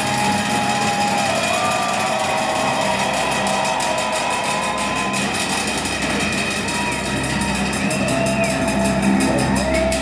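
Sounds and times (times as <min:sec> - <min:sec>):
industrial band playing: 0:00.0 - 0:10.0.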